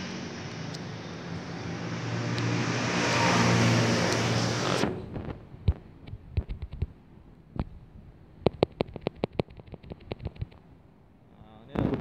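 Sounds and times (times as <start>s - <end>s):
passing road vehicle: 0.0s - 6.0s.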